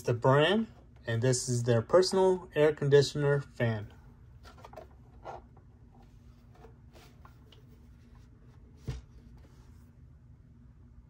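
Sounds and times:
plastic handling rubbing and scraping: 4.3s - 9.8s
soft bump: 8.0s - 9.7s.

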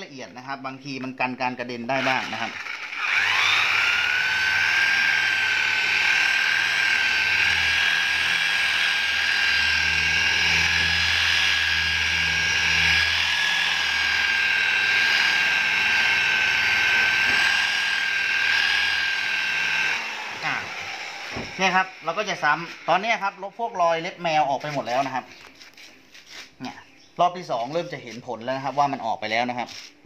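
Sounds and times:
rotary polisher motor whine: 2.0s - 25.3s.

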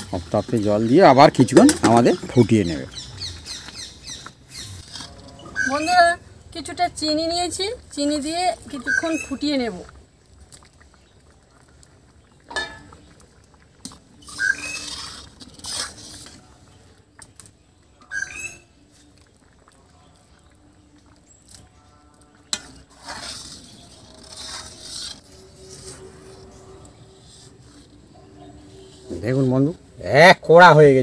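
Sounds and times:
thick food bubbling: 0.0s - 31.0s
metal ladle scraping wok: 0.1s - 2.8s, 4.3s - 6.1s, 12.5s - 13.1s, 13.8s - 16.7s, 21.4s - 29.8s
ladle knocking pan: 12.5s - 13.0s.

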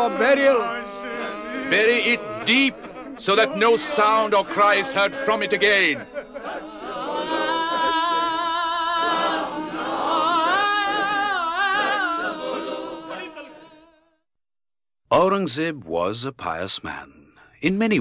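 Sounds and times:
voices singing a slow lament: 0.0s - 14.2s.

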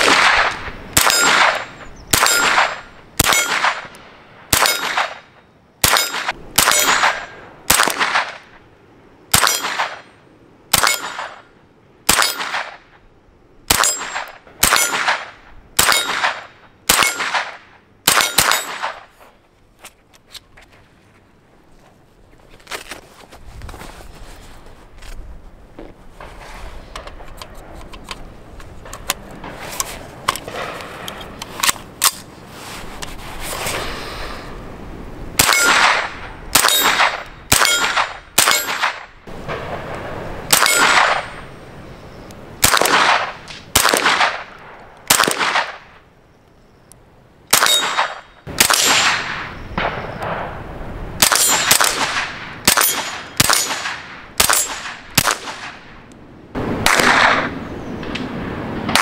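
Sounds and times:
suppressed rifle shots: 0.0s - 8.5s, 9.3s - 10.1s, 10.7s - 11.5s, 12.1s - 12.9s, 13.7s - 19.1s, 35.4s - 41.5s, 42.6s - 45.9s, 47.5s - 50.6s, 51.2s - 56.0s, 56.6s - 58.3s
bullets ringing on steel targets: 1.0s - 3.9s, 4.6s - 5.2s, 5.8s - 7.4s, 9.4s - 10.0s, 10.8s - 11.4s, 12.1s - 12.6s, 13.7s - 15.1s, 15.8s - 17.4s, 18.1s - 18.9s, 35.4s - 35.9s, 36.6s - 39.0s, 40.5s - 41.4s, 47.6s - 49.0s, 51.2s - 52.0s, 52.7s - 54.9s.

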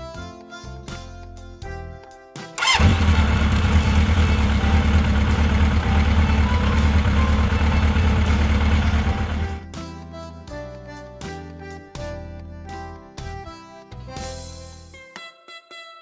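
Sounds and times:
motorcycle engine idling: 2.6s - 9.6s.

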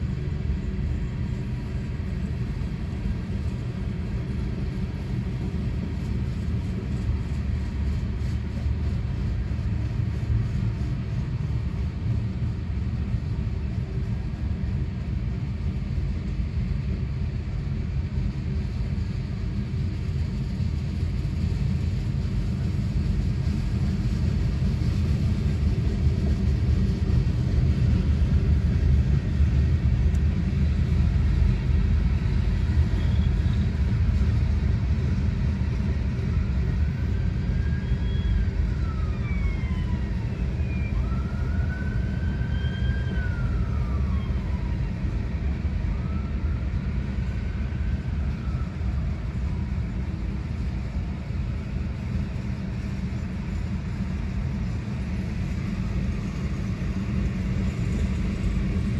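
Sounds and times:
freight train wheels rumbling: 0.0s - 58.9s.

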